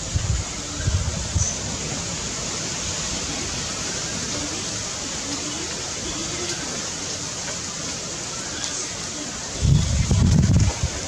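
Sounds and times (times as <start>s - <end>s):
rushing hiss of background noise: 0.0s - 11.0s.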